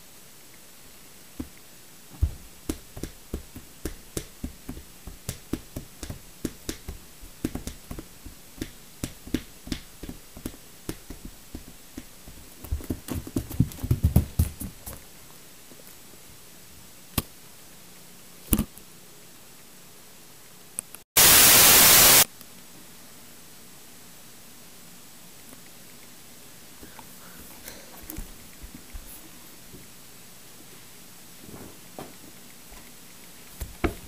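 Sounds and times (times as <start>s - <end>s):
bare feet tapping on hard floor: 1.4s - 15.0s, 33.6s - 34.0s.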